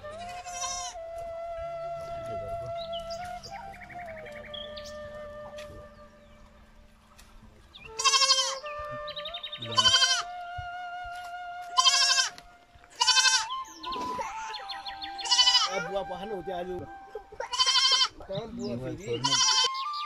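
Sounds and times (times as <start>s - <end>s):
faint background music: 0.0s - 20.0s
goat kid bleating: 0.2s - 1.0s, 8.0s - 8.6s, 9.7s - 10.3s, 11.7s - 15.9s, 17.4s - 18.3s, 19.1s - 19.8s.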